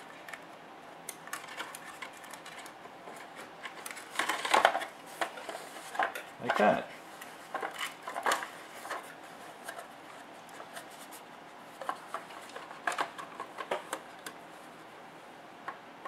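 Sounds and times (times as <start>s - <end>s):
plastic parts knocking and clicking: 1.3s - 6.8s, 11.8s - 14.4s.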